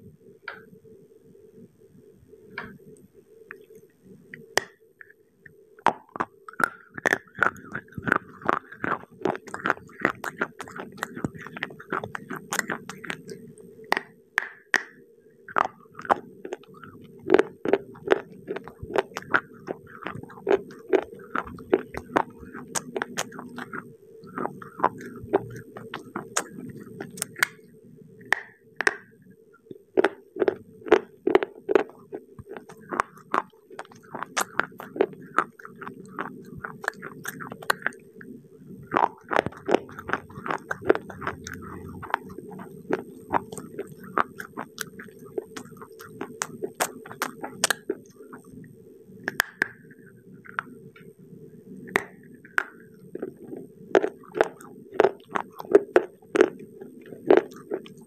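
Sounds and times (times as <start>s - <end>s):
crisp crunching of chewing: 5.9s - 14.1s, 15.5s - 27.6s, 30.0s - 48.5s, 51.9s - 58.0s.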